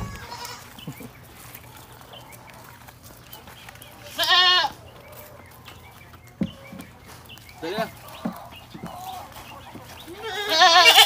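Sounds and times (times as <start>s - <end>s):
goat bleating: 0.0s - 0.9s, 4.0s - 4.8s, 10.0s - 11.0s.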